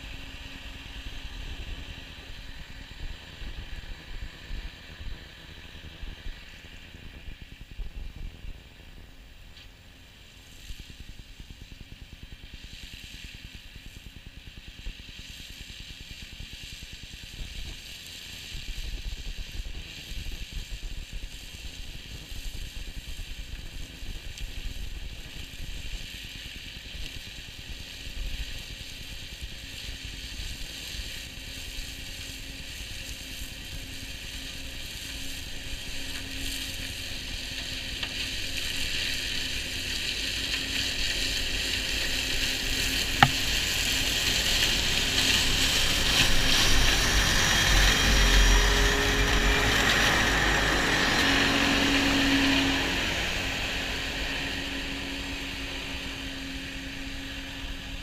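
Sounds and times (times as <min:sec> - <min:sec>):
tractor engine hum: 0:19.4 - 0:58.0.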